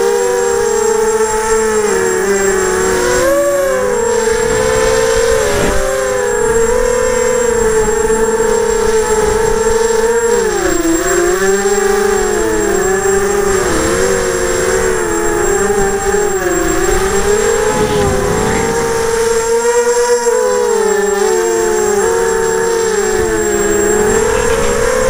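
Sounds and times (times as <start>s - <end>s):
drone motors whining: 0.0s - 25.0s
wind noise rush: 15.4s - 19.8s.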